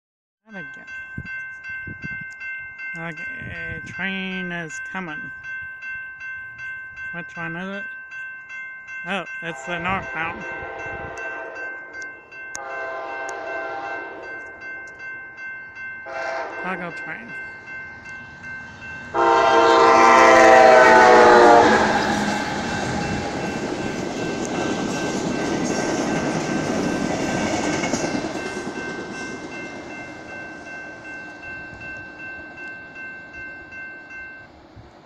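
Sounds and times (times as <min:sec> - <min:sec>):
train cars rumbling past: 0:08.5 - 0:35.0
train horn blast: 0:10.0 - 0:11.7, 0:12.5 - 0:14.4, 0:16.1 - 0:16.6, 0:19.1 - 0:23.3.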